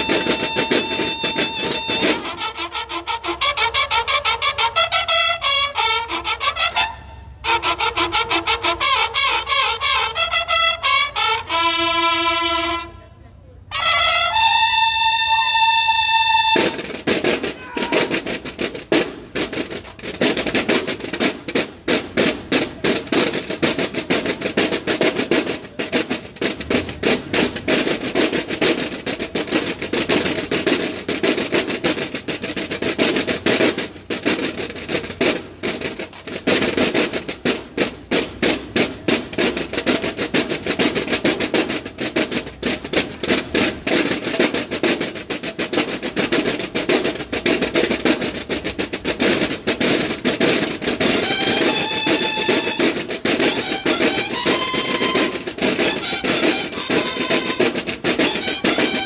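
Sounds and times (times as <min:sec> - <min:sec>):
snare drums playing a cadence: 0:00.0 - 0:04.5, 0:13.8 - 0:20.0, 0:32.9 - 0:59.0.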